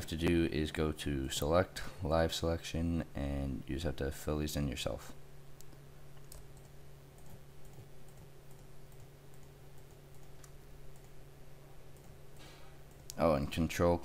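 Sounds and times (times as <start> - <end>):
steady low hum: 0.0 - 14.0
computer mouse clicks: 5.6 - 11.2.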